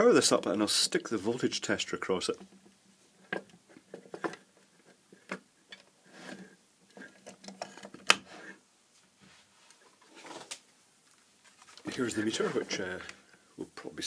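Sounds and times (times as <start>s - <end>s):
clicks and knocks of handling cables: 2.4s - 5.9s, 6.9s - 8.3s.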